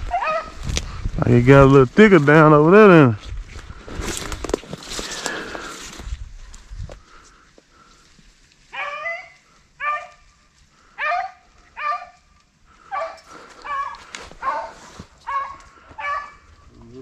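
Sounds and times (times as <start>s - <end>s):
dogs barking: 0.0s - 0.6s, 8.7s - 10.2s, 11.0s - 16.5s.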